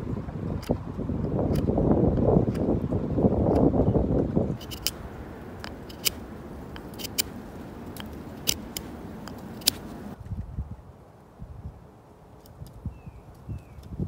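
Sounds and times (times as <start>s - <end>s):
knife whittling wood clicks: 4.6s - 10.2s.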